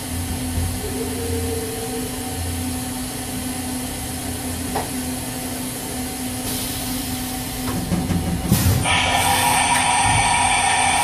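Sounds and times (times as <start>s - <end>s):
machine spindle humming: 8.8s - 11.0s.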